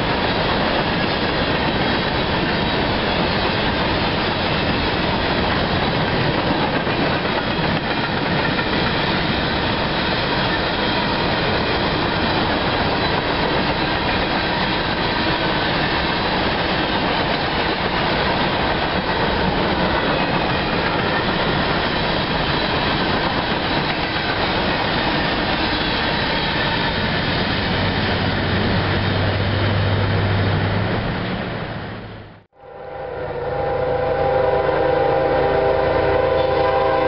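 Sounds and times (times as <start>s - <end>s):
train wheels rumbling and rattling: 0.0s - 32.5s.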